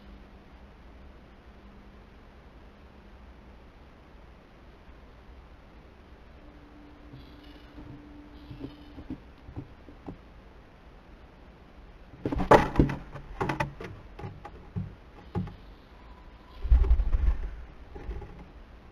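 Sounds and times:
owl knocking on wooden box: 7.1 - 10.2, 12.2 - 15.6.

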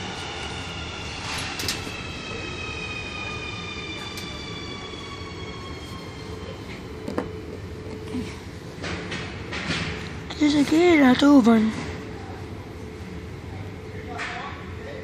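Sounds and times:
electric train drive whining: 0.0 - 8.8
wheels rumbling on rail: 0.0 - 14.9.

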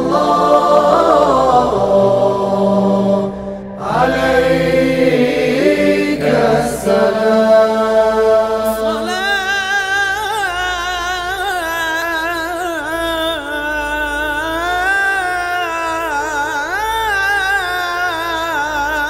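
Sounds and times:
voices chanting sustained notes: 0.0 - 10.7.

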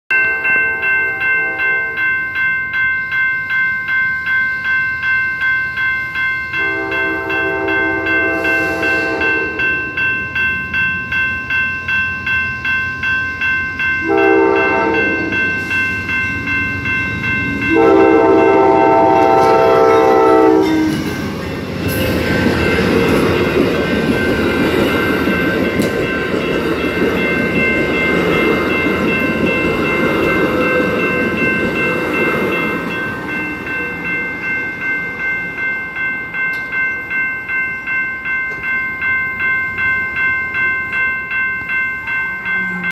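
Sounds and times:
crossing warning bells ringing: 0.1 - 42.9
train horn blasts: 0.2 - 2.0, 6.6 - 9.8, 14.0 - 15.4, 17.7 - 21.0
train rumbling past: 6.2 - 42.9.

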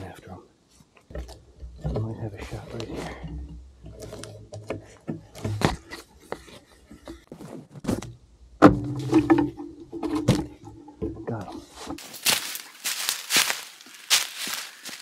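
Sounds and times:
twigs and brush cracking: 11.9 - 15.0
dry leaves crunching: 12.0 - 15.0.

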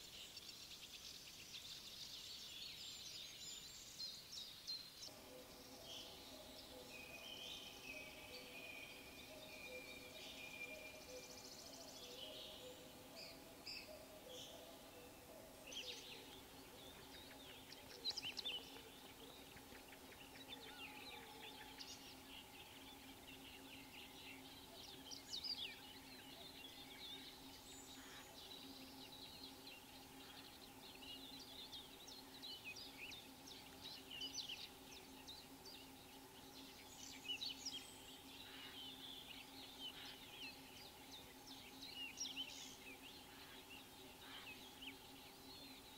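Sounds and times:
songbirds chirping: 0.0 - 45.9
steady low hum: 5.1 - 45.9.

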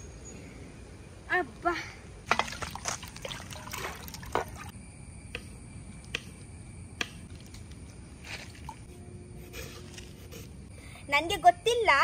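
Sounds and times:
water splashing in pot: 2.3 - 4.7.

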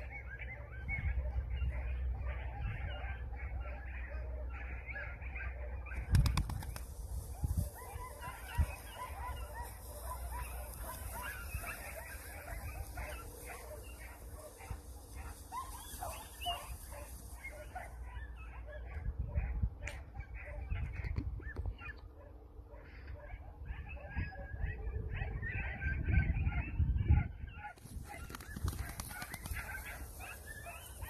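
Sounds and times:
wind rumbling on microphone: 6.0 - 18.1, 18.7 - 21.9, 23.4 - 31.0.

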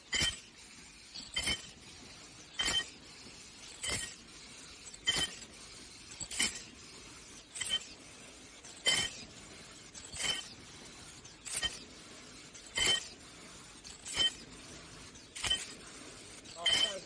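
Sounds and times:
machine clack with high ring: 0.0 - 0.5, 1.2 - 1.8, 2.6 - 3.0, 3.7 - 4.2, 4.9 - 5.5, 6.1 - 6.7, 7.6 - 8.0, 8.6 - 9.3, 9.9 - 10.6, 11.4 - 11.9, 12.5 - 13.2, 13.9 - 14.5, 15.4 - 15.8, 16.4 - 17.0
faint machine background: 0.0 - 17.0.

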